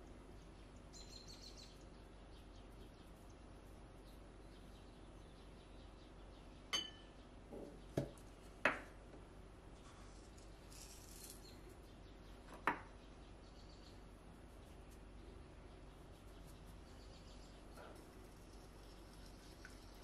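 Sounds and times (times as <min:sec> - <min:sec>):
glassy ring: 0:06.7 - 0:07.1.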